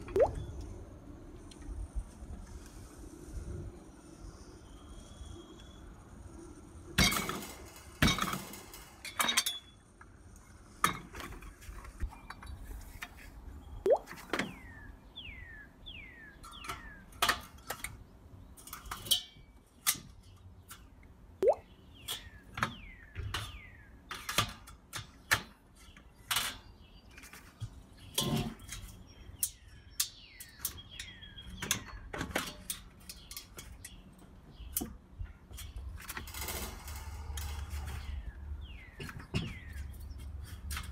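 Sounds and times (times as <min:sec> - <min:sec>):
metal grill parts clanking: 0:07.0 - 0:09.8, 0:16.4 - 0:20.2, 0:28.0 - 0:29.6.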